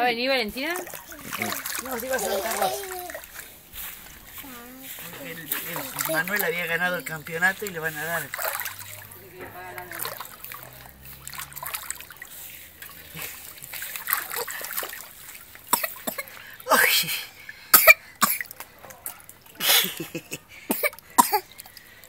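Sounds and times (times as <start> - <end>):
pool water splashing: 0.0 - 22.0
loud coughs: 15.7 - 17.1, 17.7 - 18.5, 19.6 - 21.5.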